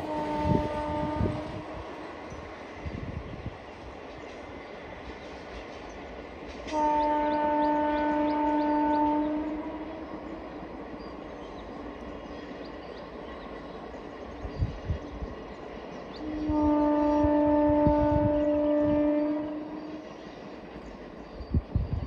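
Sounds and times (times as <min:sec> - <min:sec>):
locomotive horn blast: 0:00.0 - 0:02.4, 0:06.6 - 0:10.4, 0:16.2 - 0:20.1
train rumbling along track: 0:00.0 - 0:22.0.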